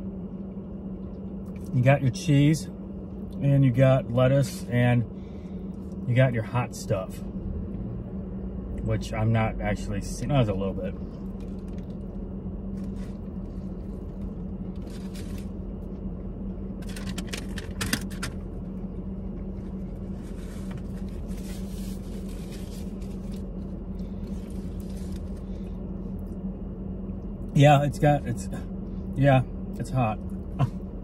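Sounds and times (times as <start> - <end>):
car cabin hum and rumble: 0.0 - 31.0
foil wrapper crinkling: 12.8 - 15.6, 20.2 - 25.5.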